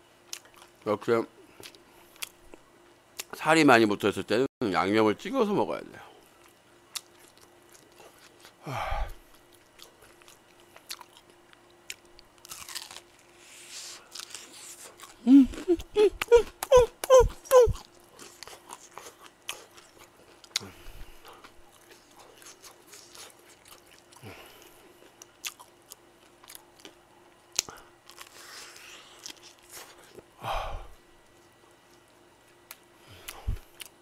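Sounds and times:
faint steady hum: 0.0 - 34.0
crunchy chewing: 0.3 - 0.8, 6.2 - 8.6, 9.2 - 30.4, 31.2 - 34.0.

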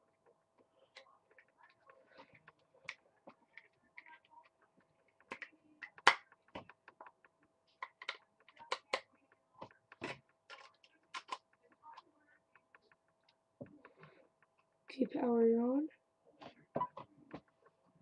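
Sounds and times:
plastic clicks and taps: 5.2 - 11.5.

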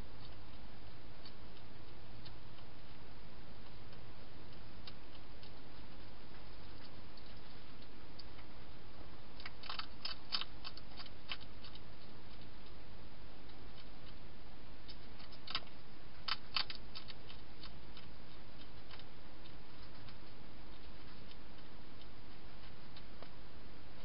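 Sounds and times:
hedgehog crunching dry food: 9.3 - 12.8, 13.4 - 23.3.

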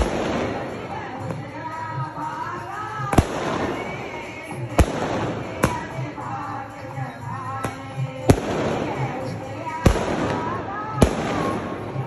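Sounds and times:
crowd voices: 0.0 - 12.0
music: 0.0 - 12.0
firework bangs: 8.2 - 12.0.

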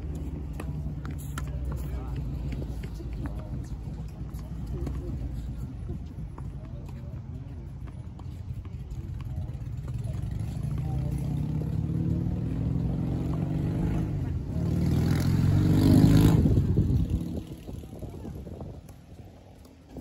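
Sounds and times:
vehicle engine accelerating past: 10.0 - 17.7.

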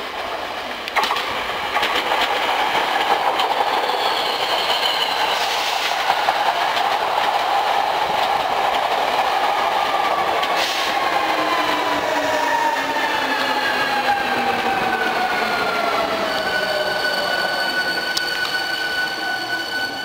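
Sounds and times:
train running noise: 0.0 - 20.0
wheels clicking over rail joints: 0.2 - 11.4.

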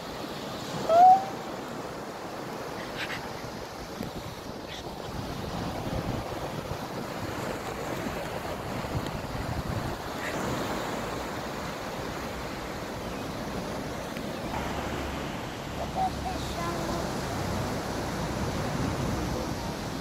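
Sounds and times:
waves washing onto beach: 0.0 - 20.0
wind buffeting microphone: 2.5 - 12.8.

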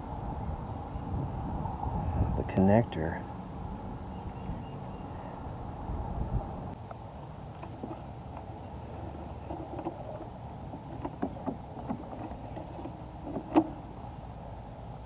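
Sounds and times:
low background rumble: 0.0 - 15.0
light clicks and knocks: 6.9 - 14.2.

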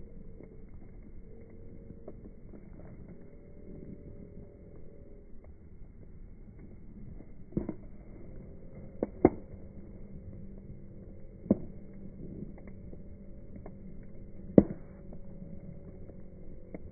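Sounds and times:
bonfire flames rushing: 0.0 - 16.9
fire crackling pops: 0.0 - 16.9.

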